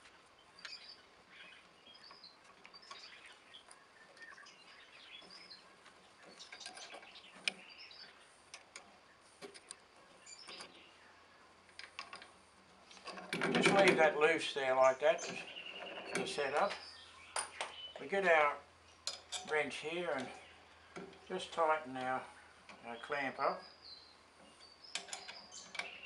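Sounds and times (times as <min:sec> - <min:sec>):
small birds chirping: 0:00.0 - 0:26.0
steel parts clinking and tapping: 0:19.0 - 0:21.6, 0:24.9 - 0:26.0.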